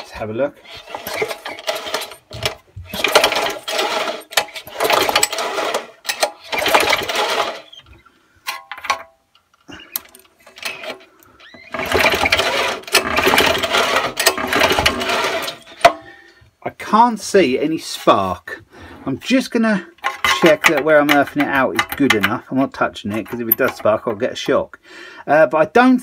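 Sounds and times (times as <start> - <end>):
lawnmower engine pull-start cranking: 0.6 - 7.9, 9.9 - 16.1, 20.0 - 24.5.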